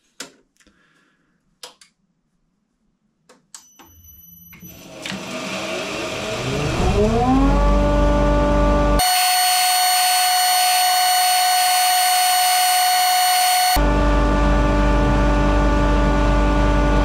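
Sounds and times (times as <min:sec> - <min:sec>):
belt grinder motor whine: 0:04.7 - 0:07.9, 0:09.0 - 0:13.8.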